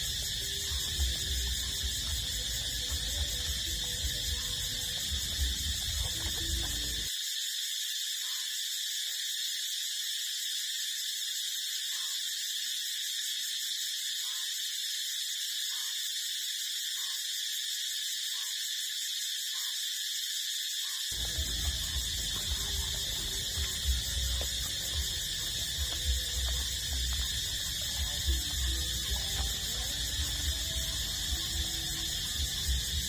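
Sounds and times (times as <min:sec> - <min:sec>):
steady high-pitched tone: 0:00.0 - 0:07.1, 0:21.2 - 0:33.0.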